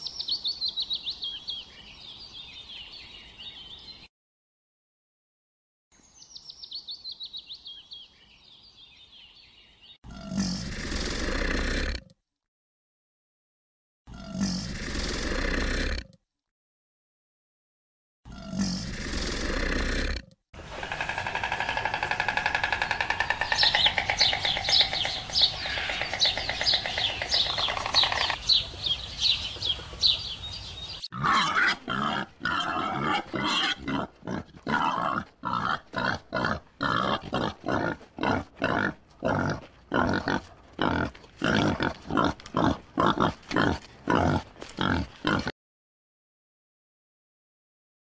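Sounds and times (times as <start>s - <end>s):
fast pulsing animal calls: 20.6s - 37.2s.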